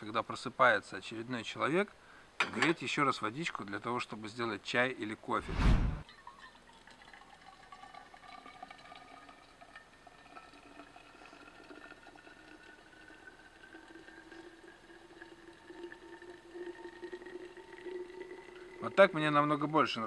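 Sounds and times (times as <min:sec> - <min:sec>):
water pouring into flask: 0:06.0 - 0:20.0.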